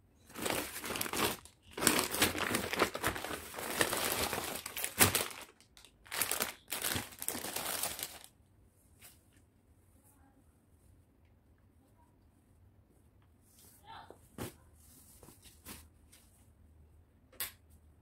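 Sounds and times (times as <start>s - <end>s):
paper envelope crinkling: 0.3s - 8.3s.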